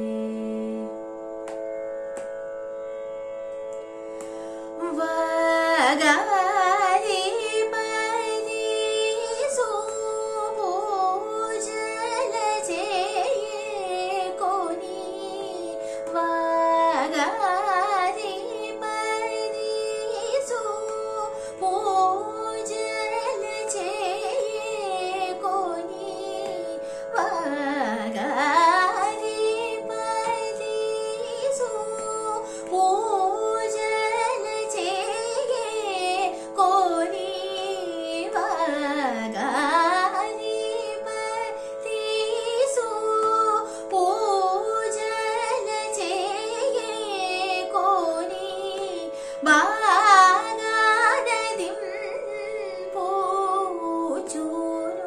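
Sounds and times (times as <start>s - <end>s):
woman singing classical music: 0.0s - 2.5s, 3.6s - 55.0s.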